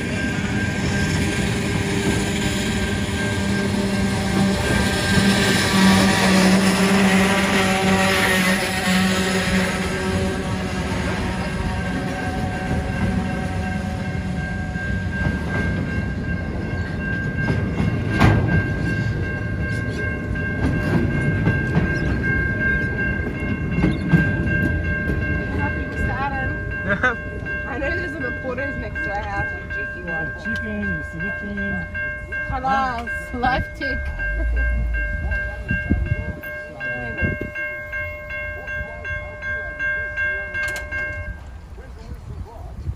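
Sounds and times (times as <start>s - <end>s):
train wheels clacking: 0.0s - 41.6s
level-crossing warning bell ringing: 0.0s - 42.2s
freight train rumbling past: 0.0s - 42.9s
low rumble: 33.3s - 37.6s.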